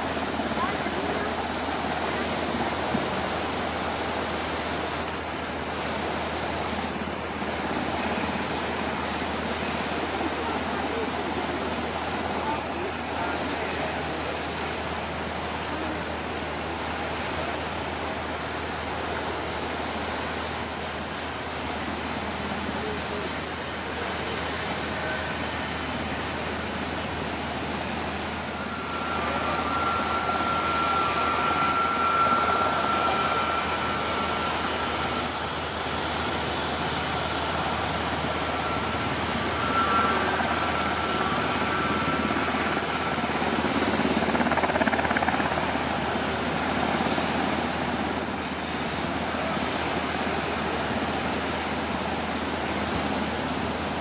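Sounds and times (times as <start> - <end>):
high engine whine: 0.0 - 54.0
jet engine rushing noise: 25.4 - 50.6.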